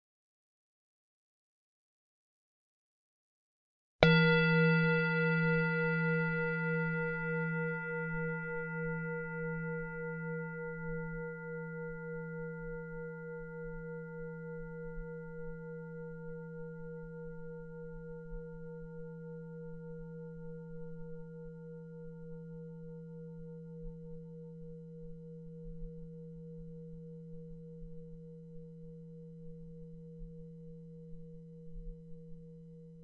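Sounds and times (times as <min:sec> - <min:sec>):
singing bowl ringing: 0:04.0 - 0:33.0.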